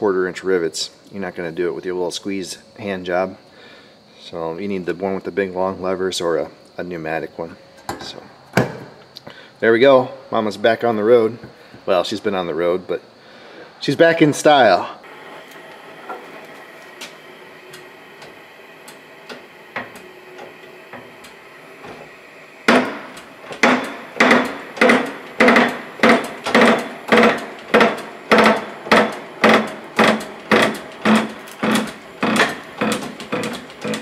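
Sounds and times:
torch flame hissing: 0:15.0 - 0:34.0
metallic clanks of hand pump: 0:22.7 - 0:34.0.

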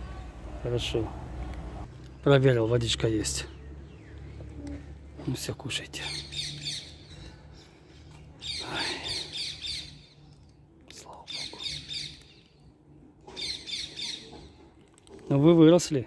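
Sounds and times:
bird chirping: 0:02.0 - 0:05.0, 0:05.8 - 0:14.7.

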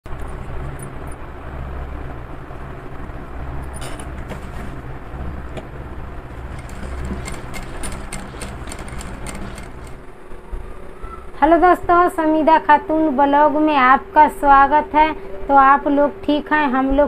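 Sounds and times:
sewing machine humming: 0:03.8 - 0:10.1
straps clicking and rustling: 0:06.4 - 0:10.0.

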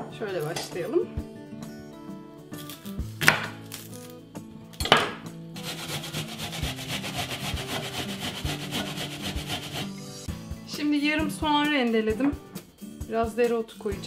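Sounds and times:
soft background music: 0:00.0 - 0:14.0
onion being grated: 0:05.6 - 0:10.0.

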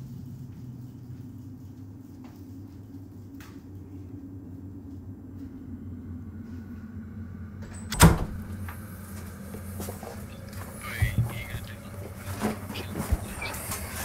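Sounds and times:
low steady hum: 0:00.0 - 0:14.0
door shutting with a bang: 0:07.6 - 0:08.6.

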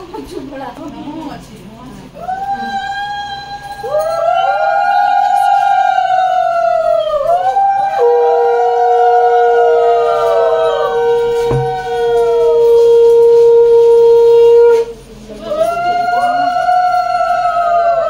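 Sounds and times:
women ululating: 0:02.2 - 0:14.8, 0:15.4 - 0:18.0
conch shell blown: 0:07.3 - 0:15.3.

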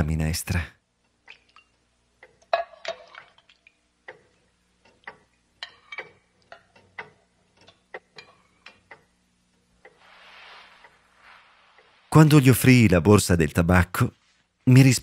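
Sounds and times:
pendulum clock ticking: 0:00.9 - 0:03.1, 0:03.7 - 0:10.0.

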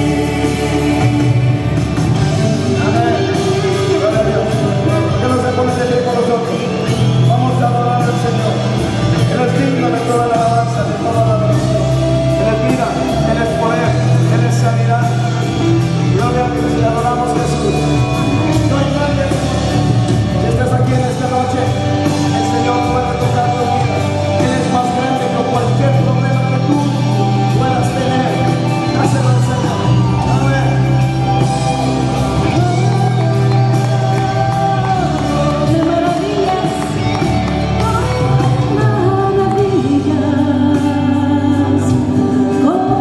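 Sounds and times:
people singing: 0:00.0 - 0:04.2
live band playing: 0:00.0 - 0:43.0.

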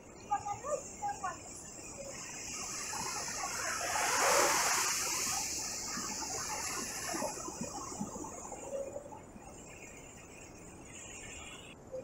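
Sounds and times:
wave breaking on shore: 0:02.5 - 0:08.4.

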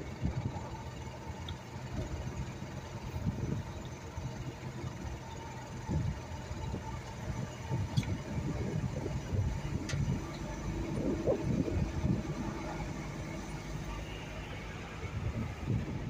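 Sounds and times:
vehicle engine and road rumble: 0:00.0 - 0:16.0.

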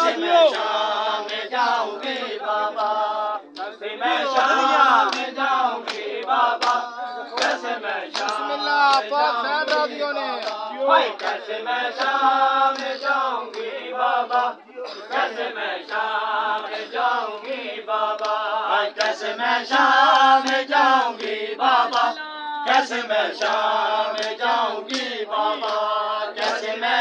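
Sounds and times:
men chanting in unison: 0:00.0 - 0:27.0
hands slapping bare chests: 0:02.8 - 0:13.7, 0:14.3 - 0:19.2, 0:20.4 - 0:22.1, 0:23.3 - 0:26.8.

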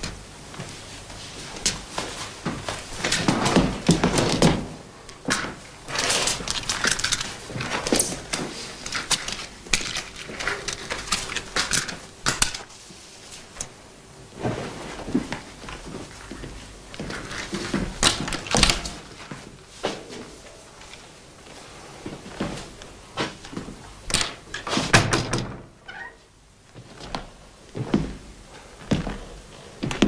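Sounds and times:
footsteps on wooden floor: 0:26.7 - 0:28.2, 0:28.8 - 0:30.0.

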